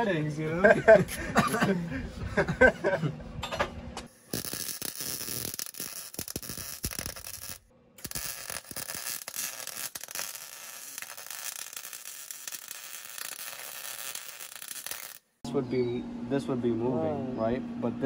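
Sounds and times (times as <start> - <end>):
welder arc crackling: 4.1 - 15.4.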